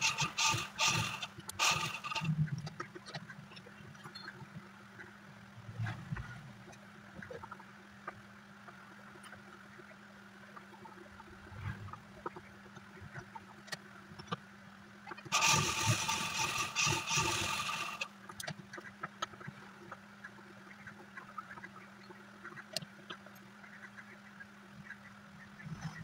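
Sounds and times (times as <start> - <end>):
sewing machine stitching: 0.0 - 2.4, 15.3 - 18.1.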